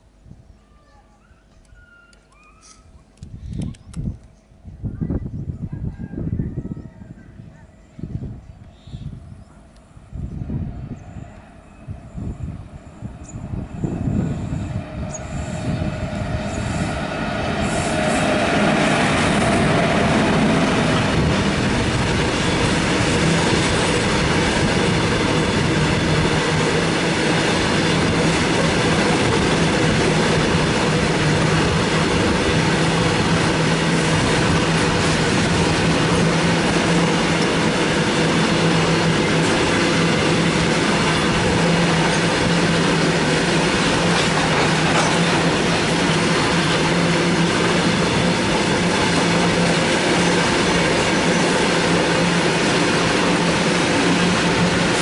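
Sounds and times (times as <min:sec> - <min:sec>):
train wheels on rails: 0:09.6 - 0:55.0.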